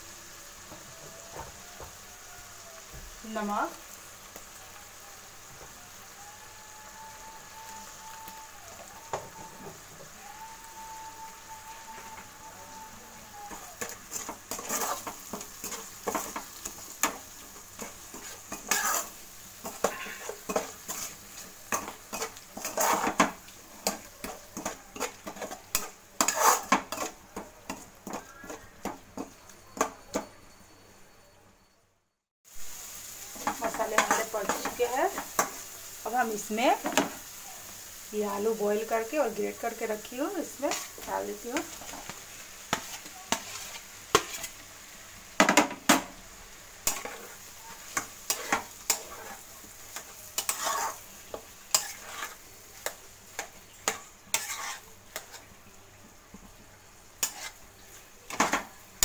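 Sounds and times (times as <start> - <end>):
spices sizzling in hot oil: 0.0 - 31.3, 32.4 - 59.0
metal spatula scraping pan: 13.5 - 30.3, 38.8 - 44.6, 46.8 - 55.5, 57.2 - 57.6.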